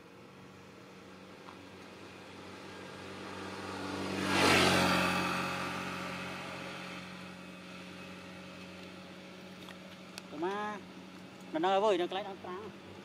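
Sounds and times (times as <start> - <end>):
vehicle passing by: 1.7 - 9.2.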